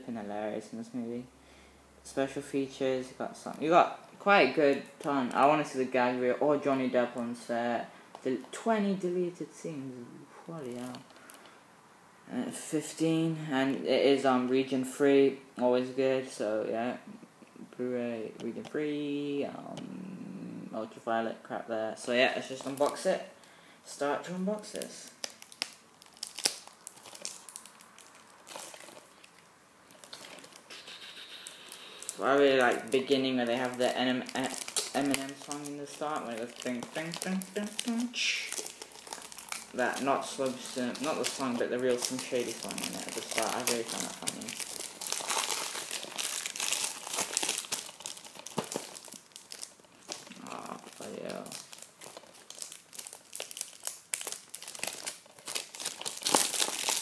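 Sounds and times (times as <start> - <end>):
plastic wrap crinkling and tearing: 24.6 - 57.0.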